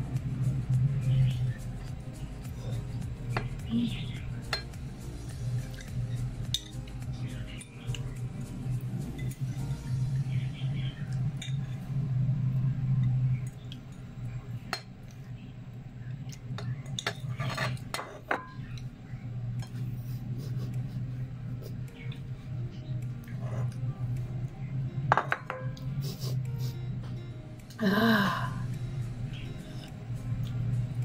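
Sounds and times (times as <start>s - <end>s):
steady low hum: 0.0s - 31.0s
fork clinking against bowl: 6.5s - 6.8s.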